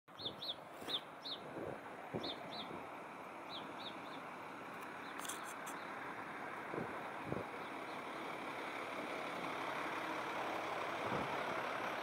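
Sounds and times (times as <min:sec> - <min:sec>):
small bird chirping: 0:00.1 - 0:01.5, 0:02.2 - 0:02.8, 0:03.5 - 0:04.3, 0:05.0 - 0:06.0
city traffic hum: 0:00.1 - 0:12.0.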